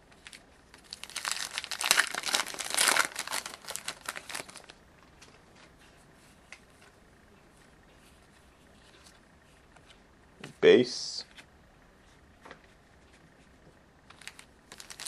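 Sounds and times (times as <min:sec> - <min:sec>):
wrapper crinkling and crackling: 0:00.2 - 0:04.8, 0:14.1 - 0:15.0.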